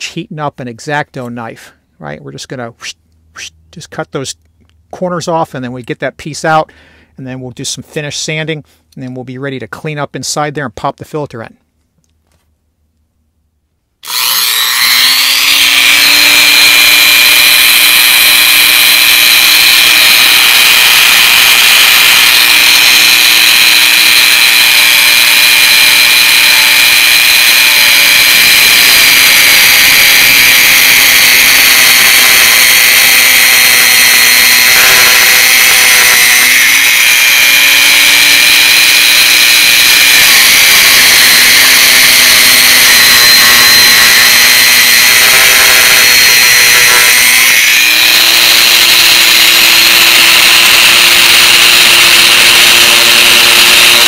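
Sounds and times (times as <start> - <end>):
rotary tool whining: 14.0 - 54.0.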